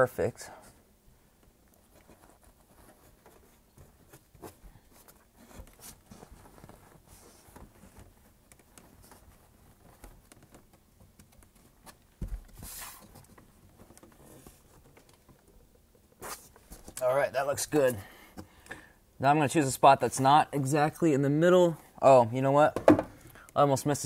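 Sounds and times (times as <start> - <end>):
hands rustling and tapping a panel: 1.3 - 17.0.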